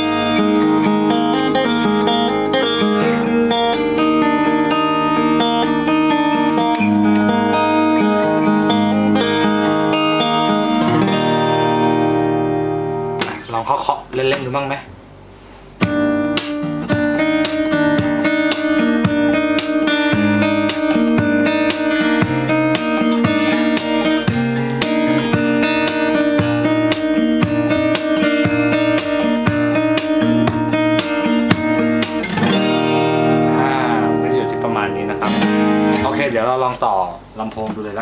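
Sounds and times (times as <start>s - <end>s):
fingerstyle acoustic guitar: 0.0s - 13.5s, 15.3s - 36.6s
taps and slaps on guitar body: 13.2s - 13.5s, 15.8s - 32.6s.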